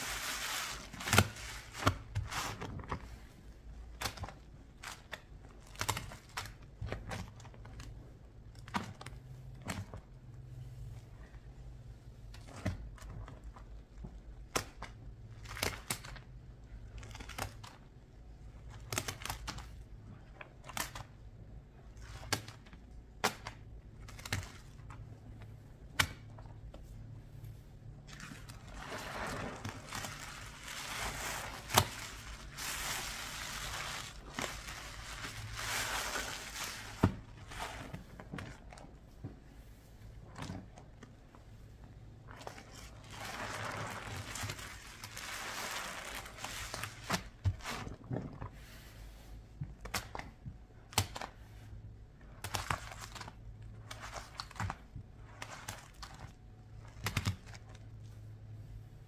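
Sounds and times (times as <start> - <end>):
crinkly scraping: 28.0 - 38.9, 42.3 - 48.1.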